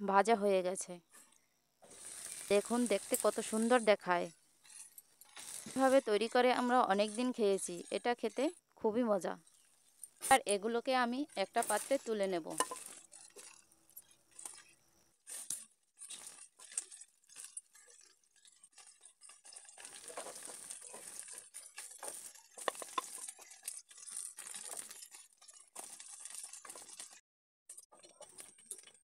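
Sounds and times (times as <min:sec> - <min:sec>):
oil hissing in pan: 0:01.8 - 0:03.8, 0:18.4 - 0:27.2
wooden spatula scraping frying pan: 0:01.8 - 0:03.8, 0:04.6 - 0:08.4, 0:11.2 - 0:27.2.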